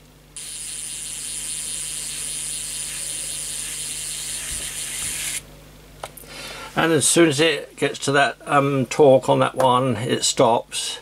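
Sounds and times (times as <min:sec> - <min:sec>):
electric screwdriver motor running: 0:00.4 - 0:05.4.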